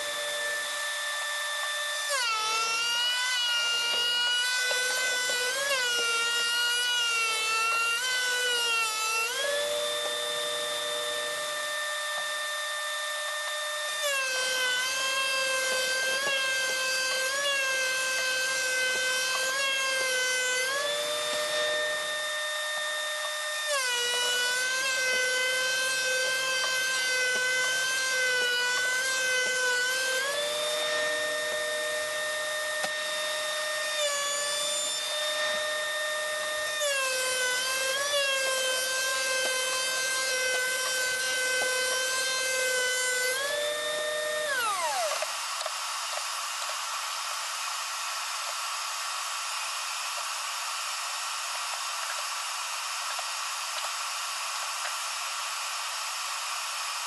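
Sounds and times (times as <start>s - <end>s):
thickness planer motor whine: 0.0s - 57.0s
motor winding down: 13.4s - 46.0s.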